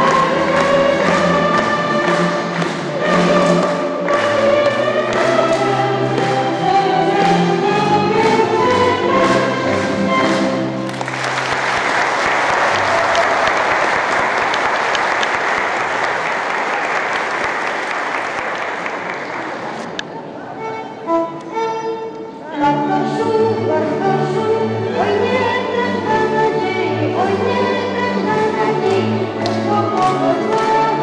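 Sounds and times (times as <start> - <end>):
audience applause: 0.0 - 4.6, 10.8 - 19.9
group singing with instruments: 0.0 - 10.8, 22.9 - 31.0.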